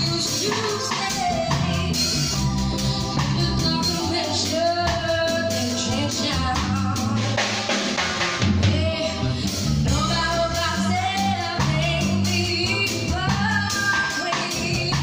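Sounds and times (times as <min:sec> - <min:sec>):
woman singing long notes: 0:00.0 - 0:07.4
drum kit: 0:00.0 - 0:15.0
electric bass: 0:00.0 - 0:15.0.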